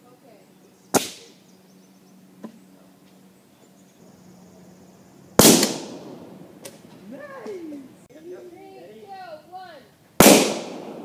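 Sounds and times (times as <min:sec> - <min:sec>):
gas explosion bang with echo: 0:05.4 - 0:06.3, 0:10.2 - 0:11.0.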